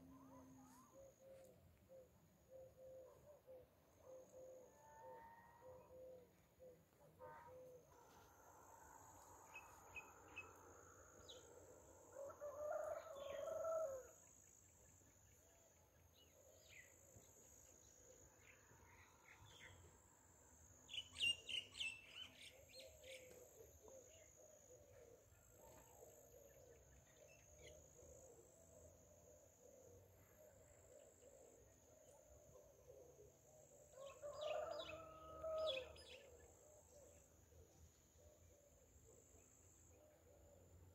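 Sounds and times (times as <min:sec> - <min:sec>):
rooster crowing: 0:12.1 - 0:14.1, 0:34.0 - 0:36.0.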